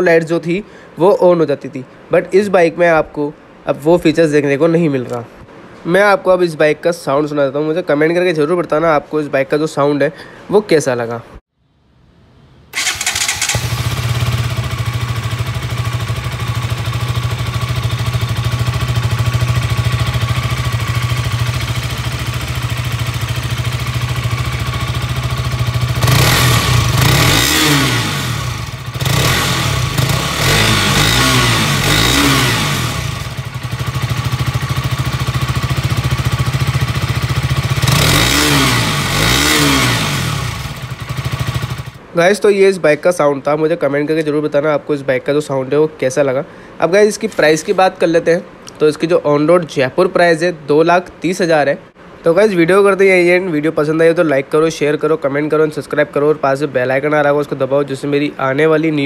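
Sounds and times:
motorcycle engine idling and revving: 0:12.8 - 0:42.0.

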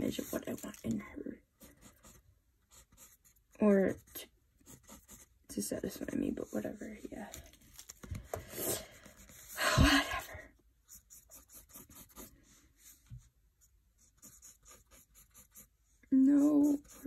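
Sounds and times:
pencil scratching on paper: 0:00.0 - 0:00.9, 0:01.6 - 0:07.4, 0:09.0 - 0:09.6, 0:10.8 - 0:17.0.

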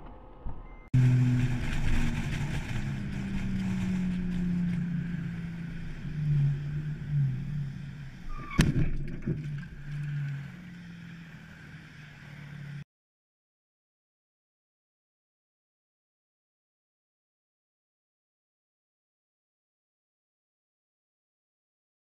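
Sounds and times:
car crash: 0:00.0 - 0:10.3
car engine running: 0:00.0 - 0:12.8
road noise inside car: 0:00.0 - 0:12.8.

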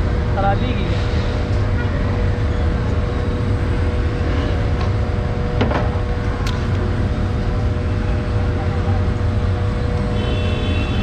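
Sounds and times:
faint constant hum: 0:00.0 - 0:11.0
low engine rumble: 0:00.0 - 0:11.0.

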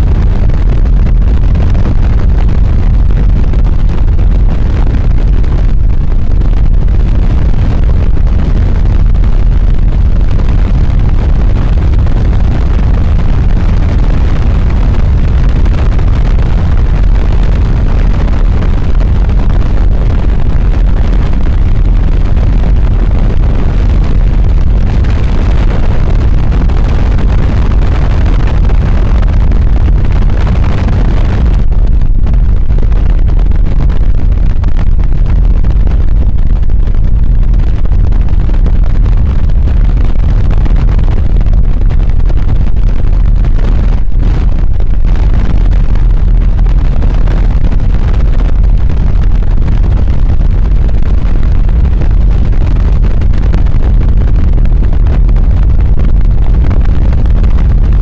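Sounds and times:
wind rushing over microphone: 0:00.0 - 0:58.0.

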